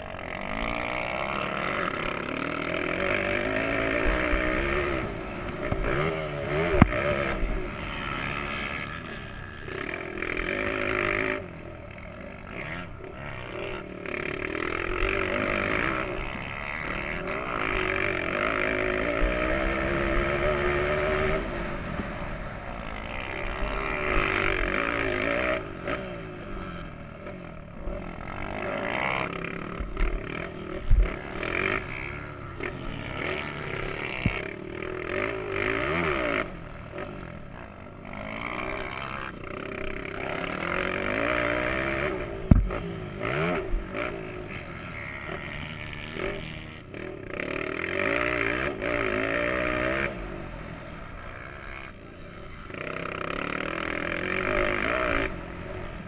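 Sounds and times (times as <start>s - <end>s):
motocross bike engine revving: 0.0s - 56.0s
sharp thumps: 42.4s - 42.8s.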